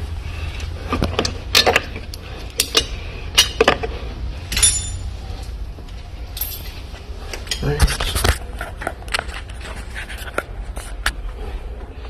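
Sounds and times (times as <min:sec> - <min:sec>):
steady low hum: 0:00.0 - 0:12.0
metal parts clinking: 0:04.5 - 0:05.1, 0:06.3 - 0:06.8.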